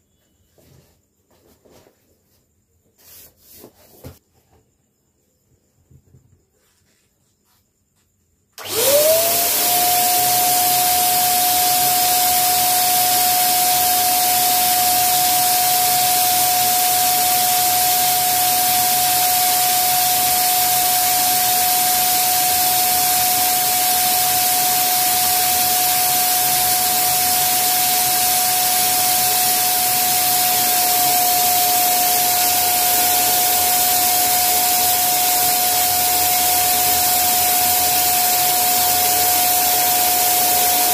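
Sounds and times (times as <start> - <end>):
electric air pump whine: 8.6 - 40.9.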